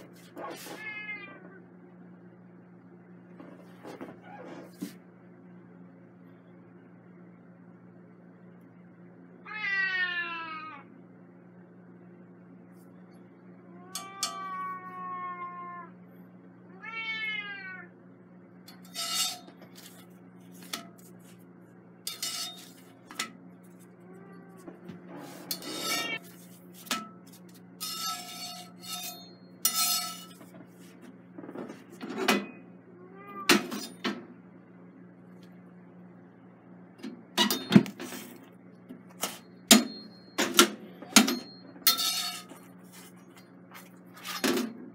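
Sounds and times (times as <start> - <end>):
steady low hum: 0.0 - 44.9
cat meowing: 0.6 - 1.6, 9.4 - 10.9, 13.7 - 16.0, 16.7 - 17.9, 33.0 - 33.5
metal clattering on skillet: 22.1 - 23.3, 41.8 - 42.6.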